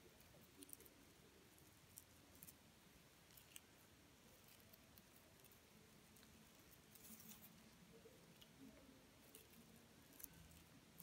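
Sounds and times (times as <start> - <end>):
paper cord ticks and rustles: 4.4 - 11.0.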